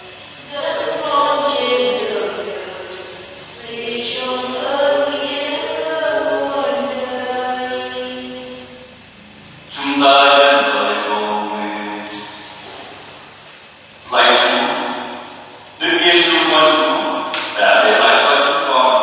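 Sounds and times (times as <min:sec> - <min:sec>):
voices singing church chant: 0:00.0 - 0:08.8, 0:14.1 - 0:19.0.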